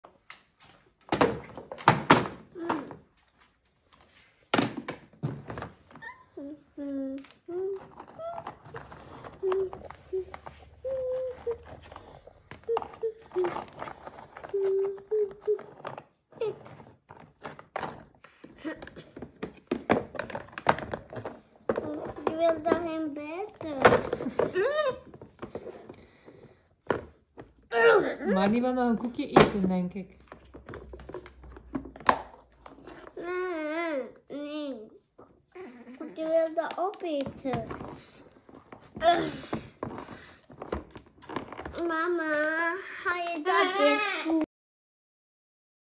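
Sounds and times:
plastic container taps and clatters: 0:17.1 - 0:26.0.

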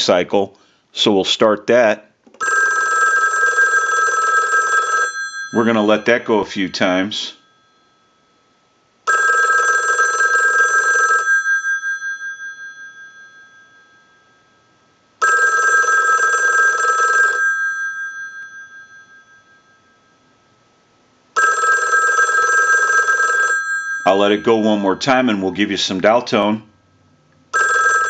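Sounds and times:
telephone bells ringing: 0:02.4 - 0:08.3, 0:09.0 - 0:14.6, 0:15.2 - 0:20.4, 0:21.4 - 0:25.3, 0:27.5 - 0:28.0.

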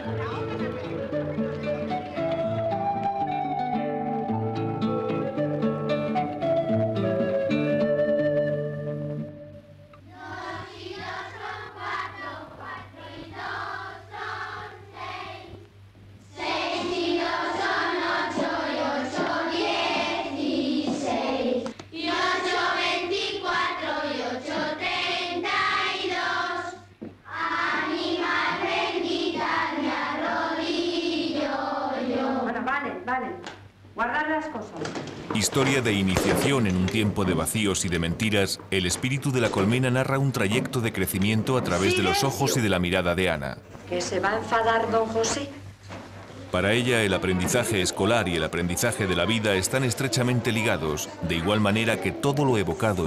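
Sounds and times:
girls chanting in unison: 0:16.4 - 0:32.5.

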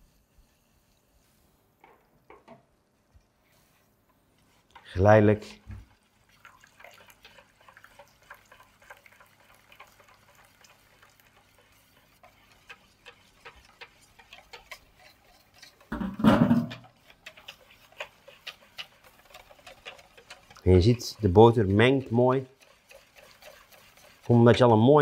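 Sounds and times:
whisk clicking against metal bowl: 0:06.4 - 0:25.0.

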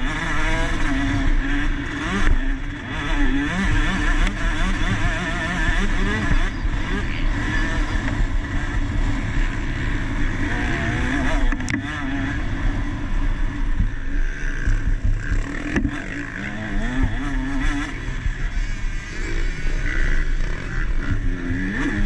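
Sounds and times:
motorcycle engine revving: 0:00.0 - 0:22.0.

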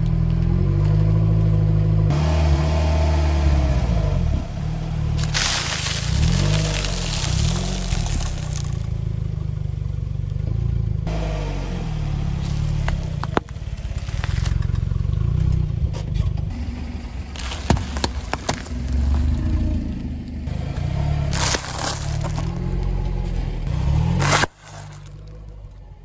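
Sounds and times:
car engine running: 0:00.0 - 0:26.0
tyre crushing objects: 0:05.2 - 0:08.9, 0:12.4 - 0:14.8, 0:17.4 - 0:19.3, 0:21.3 - 0:22.8, 0:23.9 - 0:25.3.

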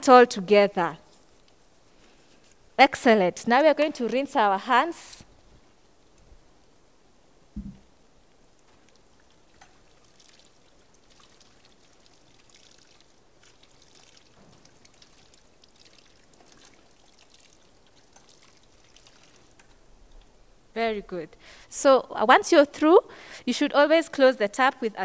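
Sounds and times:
low thump: 0:07.6 - 0:07.9.

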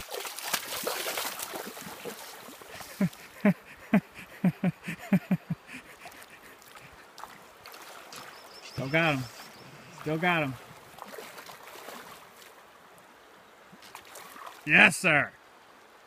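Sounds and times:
fish thrashing in water: 0:00.0 - 0:03.2
river running: 0:00.0 - 0:16.0.

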